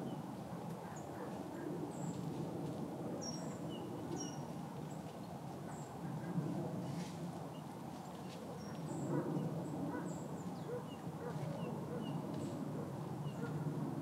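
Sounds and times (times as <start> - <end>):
songbirds chirping: 3.2 - 6.6, 7.4 - 13.6.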